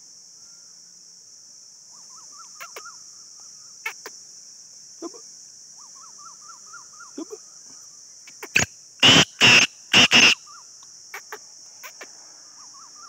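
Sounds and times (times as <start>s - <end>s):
high insect drone: 0.0s - 13.0s
faint bird chirps: 1.8s - 4.2s, 5.0s - 13.0s
bird calling rough notes: 8.4s - 10.4s.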